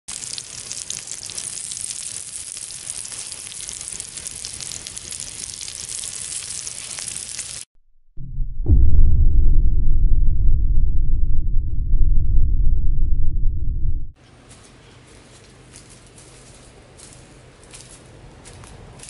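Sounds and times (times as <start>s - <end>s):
sausages sizzling in hot fat: 0.1s - 7.7s
loud low rumble: 7.8s - 14.2s.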